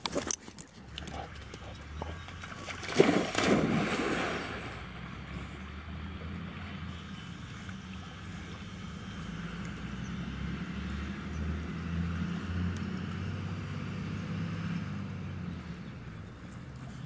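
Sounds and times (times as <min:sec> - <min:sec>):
water swishing as dog swims: 0:00.0 - 0:09.7
steady low hum: 0:00.8 - 0:12.4
dog splashing into pond: 0:02.3 - 0:06.8.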